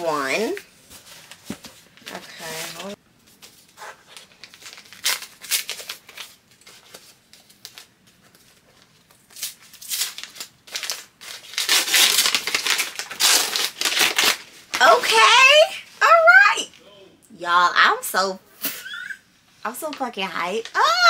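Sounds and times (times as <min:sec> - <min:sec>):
paper wrapping crinkling and tearing: 0:00.4 - 0:15.7.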